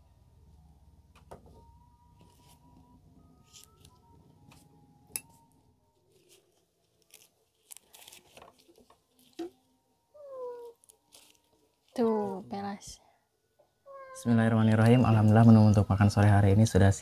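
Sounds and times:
clicks and rustles of handling: 6.1 - 9.6
cat meowing: 10.1 - 10.9, 13.8 - 14.4.

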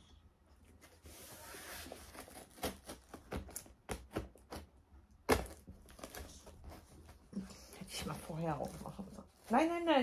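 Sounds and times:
knife cutting tape and cardboard: 1.0 - 4.7.

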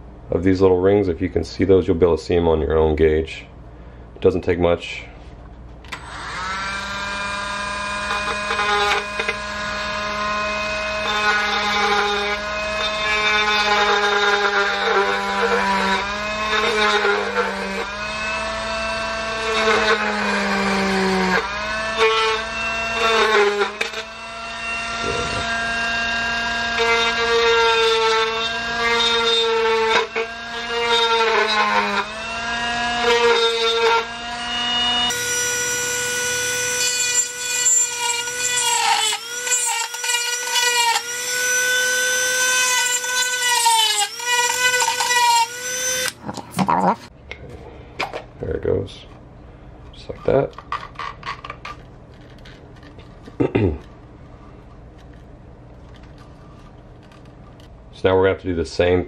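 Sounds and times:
rotary tool whining: 5.9 - 46.7.

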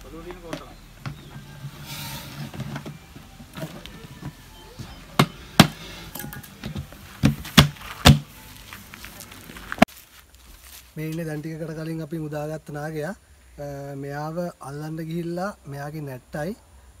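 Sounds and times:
bucket lid knocking shut: 5.2 - 5.8.

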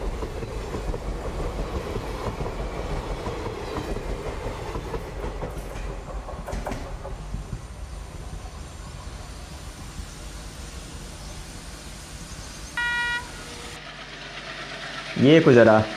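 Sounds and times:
train wheels clattering over rail joints: 0.0 - 9.0.

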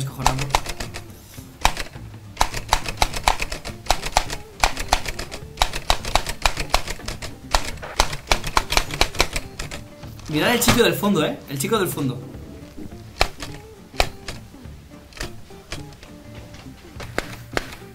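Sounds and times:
typewriter keys clacking: 0.2 - 9.9, 13.2 - 14.4.

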